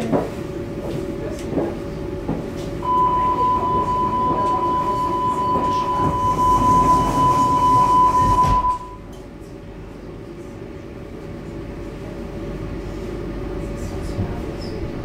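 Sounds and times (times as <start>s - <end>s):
station background noise: 0.0s - 15.0s
steady high warning beep: 2.8s - 9.1s.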